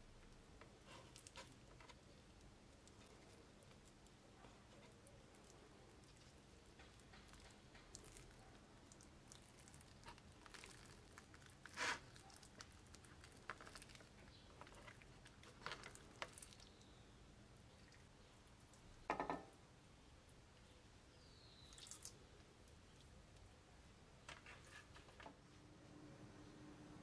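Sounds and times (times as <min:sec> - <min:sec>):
soft squishes of raw meat: 0:00.1 - 0:19.1, 0:20.1 - 0:24.0.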